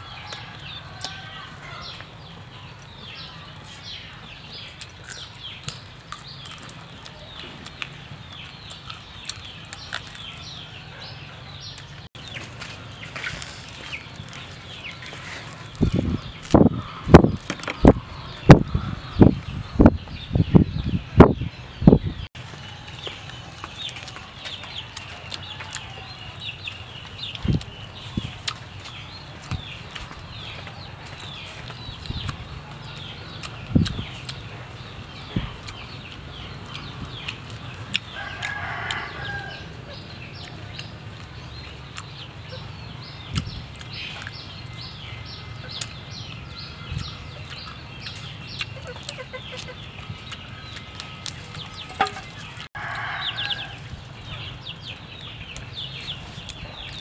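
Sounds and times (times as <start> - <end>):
rooster crowing: 0.0 - 2.0, 38.1 - 39.8, 52.8 - 53.8
chickens clucking: 22.0 - 57.0.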